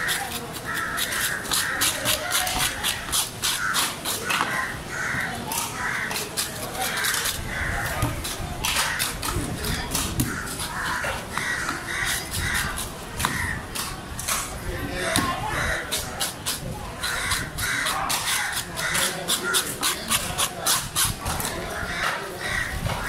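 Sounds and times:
knife scraping fish scales: 0:00.0 - 0:04.4, 0:05.6 - 0:11.1, 0:11.8 - 0:13.0, 0:15.7 - 0:21.6
crows cawing: 0:00.0 - 0:08.1, 0:08.7 - 0:09.2, 0:10.2 - 0:13.6, 0:15.3 - 0:16.4, 0:17.0 - 0:20.0, 0:21.6 - 0:23.0.

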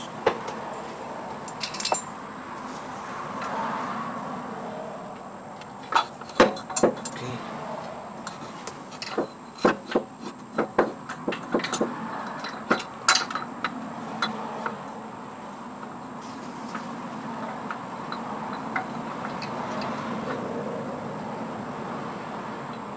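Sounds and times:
metal clinks of hand tools: 0:01.5 - 0:02.2, 0:05.8 - 0:07.3, 0:11.1 - 0:14.4.

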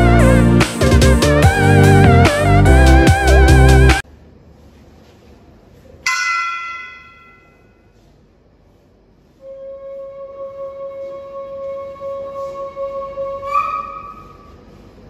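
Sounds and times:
bell-like struck note: 0:06.1 - 0:07.8
long flute-like note: 0:09.4 - 0:14.2.

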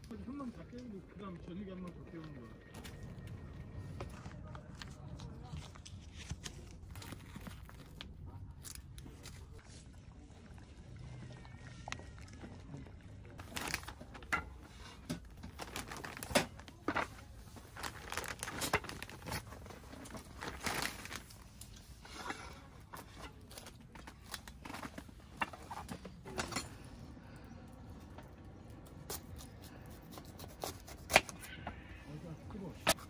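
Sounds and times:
plastic crinkling and tearing: 0:04.7 - 0:09.6, 0:13.4 - 0:14.4, 0:15.0 - 0:26.0.

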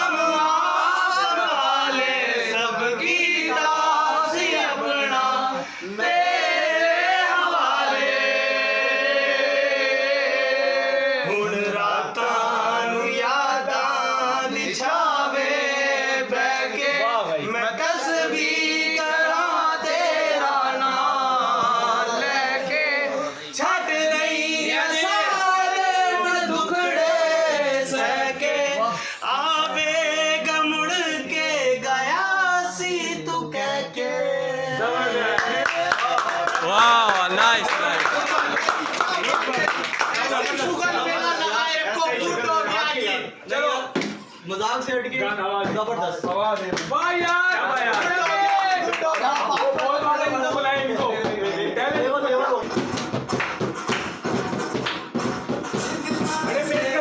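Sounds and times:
men singing unaccompanied: 0:00.0 - 0:36.8, 0:55.6 - 0:57.0.

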